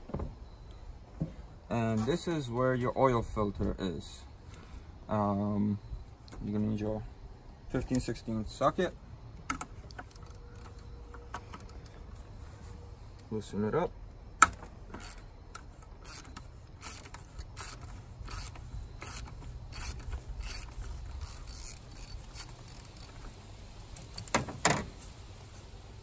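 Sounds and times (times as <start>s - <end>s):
socket ratchet clicking: 14.4s - 24.8s.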